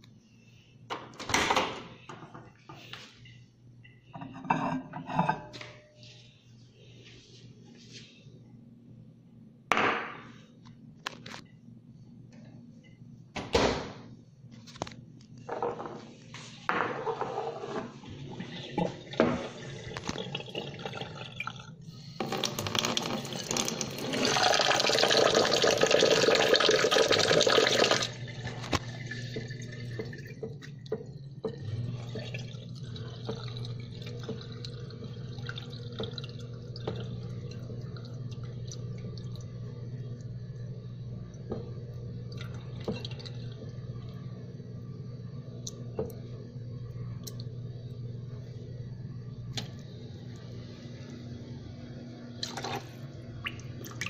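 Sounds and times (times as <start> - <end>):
kitchen tap running into sink: 22.2 - 39.4.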